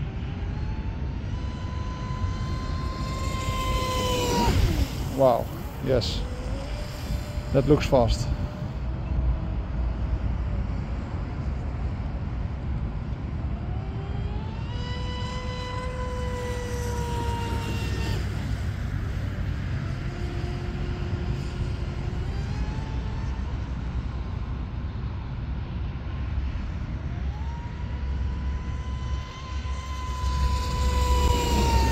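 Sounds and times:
electric boat motor whining: 0.0 - 10.8, 13.6 - 24.4, 27.0 - 31.9
steady low rumble: 0.8 - 13.6.

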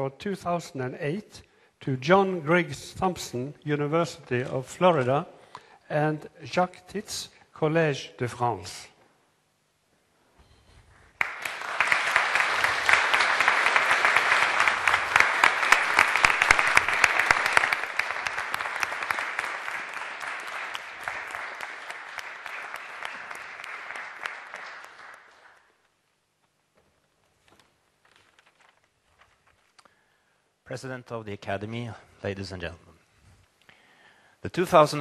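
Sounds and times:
audience applauding: 11.1 - 25.8.

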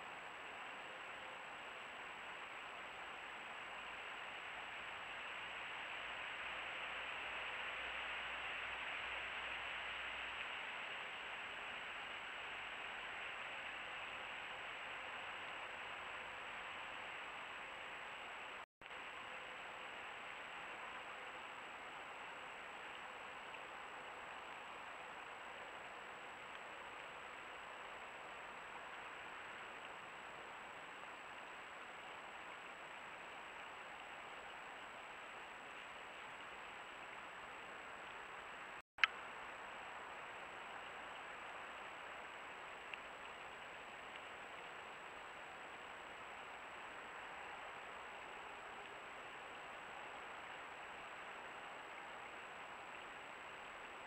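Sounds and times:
microphone hiss: 0.0 - 54.0.

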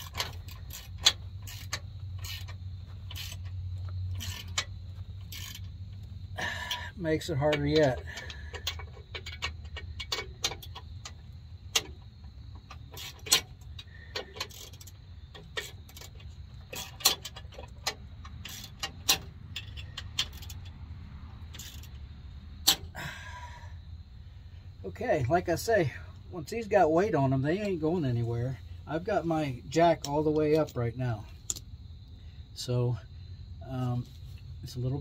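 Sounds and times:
hand tools clicking on metal: 0.0 - 20.8, 21.4 - 22.0, 22.6 - 23.3
low steady hum: 0.0 - 35.0.

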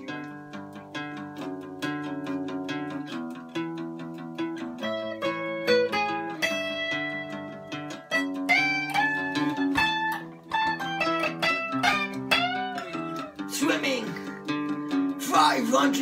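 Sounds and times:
acoustic guitar: 0.0 - 16.0
electric guitar: 0.0 - 16.0.

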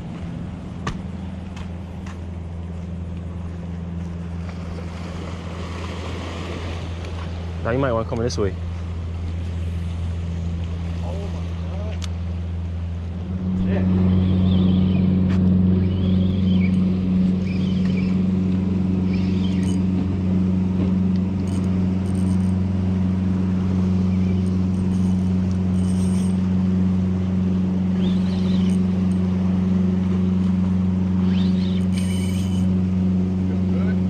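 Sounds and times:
motorboat engine drone: 0.0 - 34.0.

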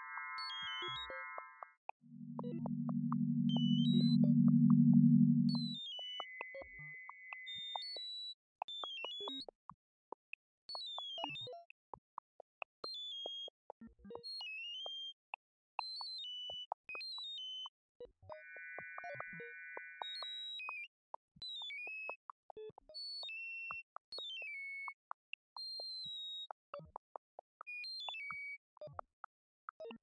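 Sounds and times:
synthesized tone pulses: 0.0 - 5.8
steady high tones: 2.1 - 5.8
falling runs of high beeps: 2.2 - 5.8.

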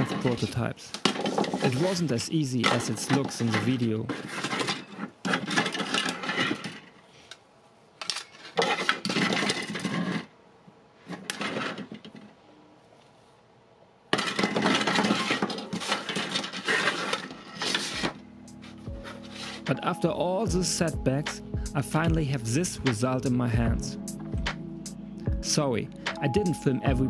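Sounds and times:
metal parts clattering and scraping: 0.0 - 7.4, 8.0 - 10.3, 11.1 - 12.3, 14.1 - 19.7.

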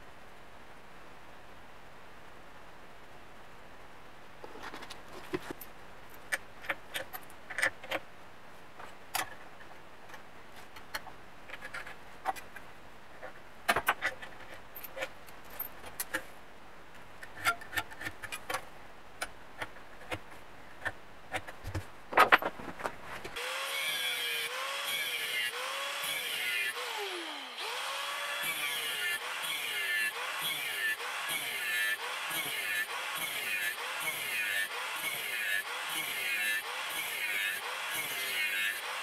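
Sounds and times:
faint steady hiss: 0.0 - 23.4.

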